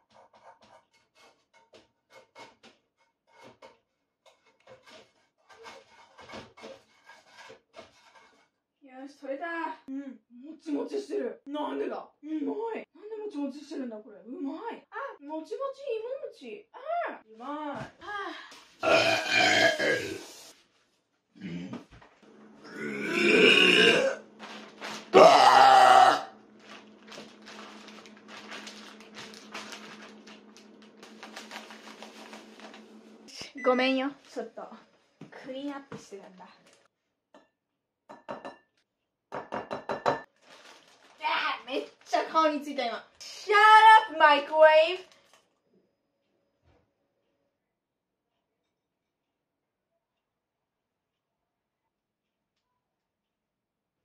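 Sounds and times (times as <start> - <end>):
food scraping in a bowl: 0.0 - 8.6.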